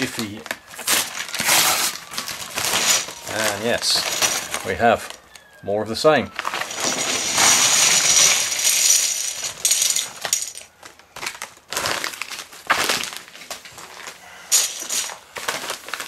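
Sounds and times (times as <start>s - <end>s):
plastic bricks clattering: 0.0s - 5.2s, 6.3s - 16.0s
paper envelope crinkling: 0.0s - 5.5s, 10.8s - 16.0s.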